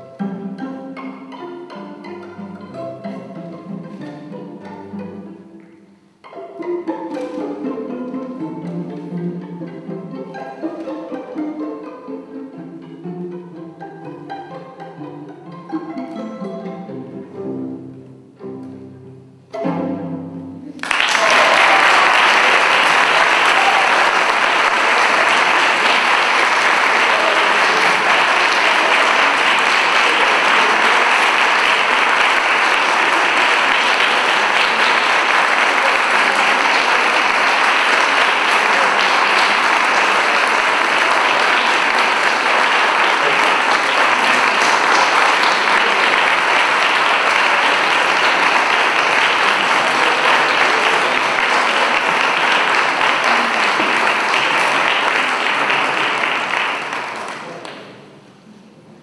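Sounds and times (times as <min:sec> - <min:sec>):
audience applauding: 0:20.7 - 0:58.0.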